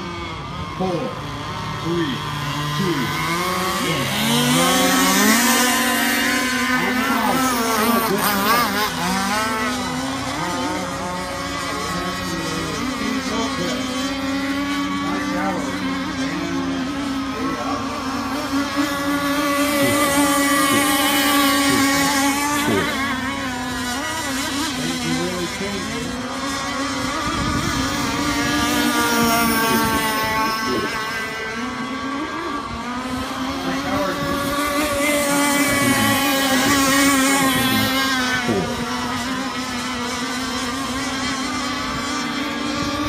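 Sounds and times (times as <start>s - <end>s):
model boat engines whining: 0.0s - 43.0s.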